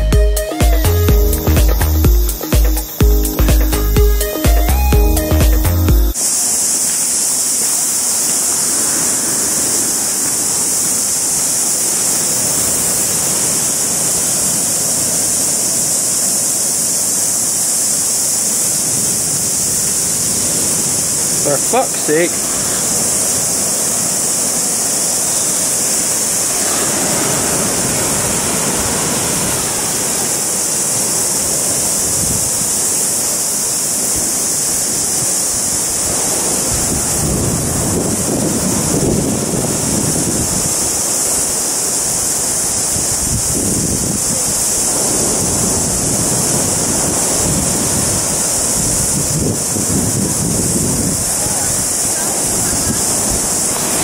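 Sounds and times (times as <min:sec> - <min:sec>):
ocean surf on sandy beach: 0:00.0 - 0:54.0
wind buffeting microphone: 0:22.3 - 0:32.9, 0:34.1 - 0:41.5, 0:42.1 - 0:54.0.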